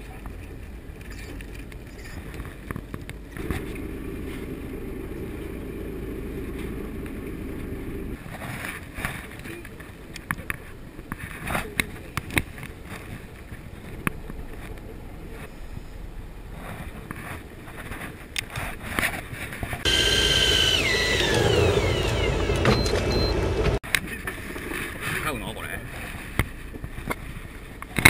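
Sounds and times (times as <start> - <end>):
electric fishing reel whining: 19.9 - 23.4.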